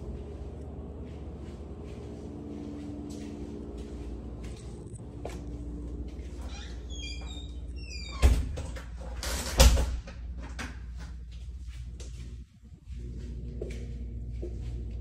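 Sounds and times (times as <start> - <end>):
steady low hum: 0.0 - 15.0
door squeaking: 6.4 - 8.8.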